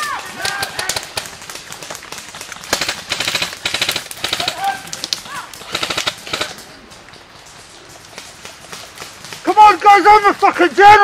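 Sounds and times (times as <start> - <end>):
airsoft rifles firing bursts: 0.0 - 6.8.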